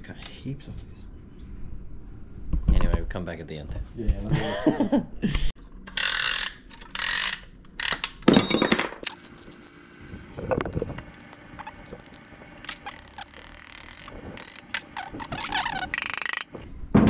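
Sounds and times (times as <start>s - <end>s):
metal rasping and clicking: 10.9s - 16.5s.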